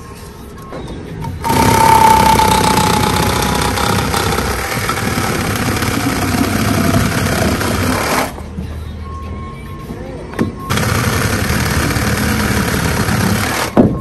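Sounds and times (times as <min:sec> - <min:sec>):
reciprocating saw cutting block: 0:01.2 - 0:08.3.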